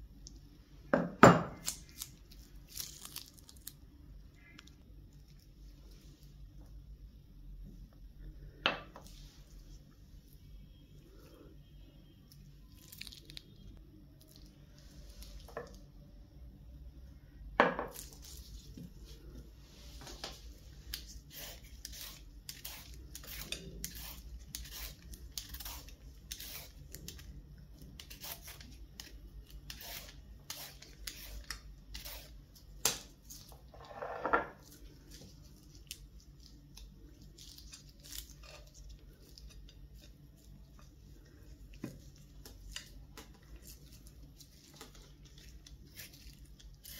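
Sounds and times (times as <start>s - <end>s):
peeler scraping a carrot: 21.3s - 27.1s, 28.0s - 28.7s, 29.6s - 32.4s.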